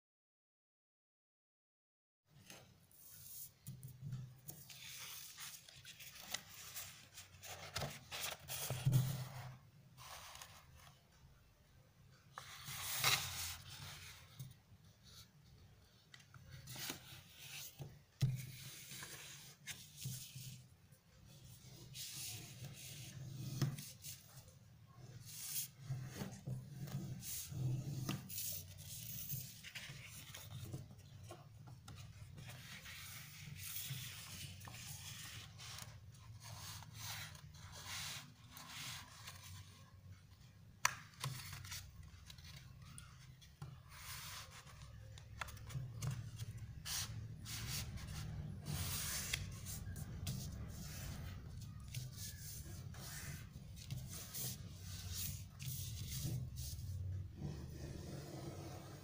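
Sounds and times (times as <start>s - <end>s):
paper rubbing and rustling: 2.5s - 11.0s, 12.4s - 15.3s, 25.2s - 39.8s, 41.1s - 57.2s.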